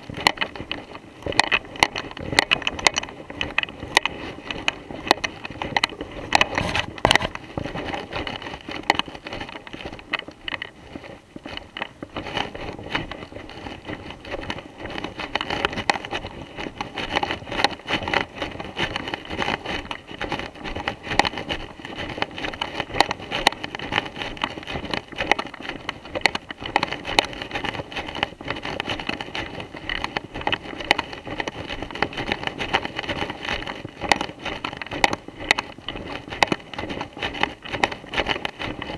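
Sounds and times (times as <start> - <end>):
footsteps in dry leaves: 0.0 - 38.9.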